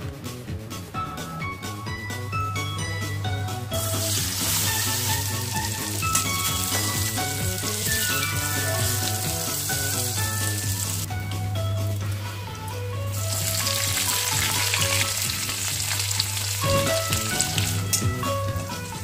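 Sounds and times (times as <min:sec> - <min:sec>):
background music: 0:00.0 - 0:19.0
cheese cubes sizzling in oil: 0:03.8 - 0:11.1, 0:13.0 - 0:18.1.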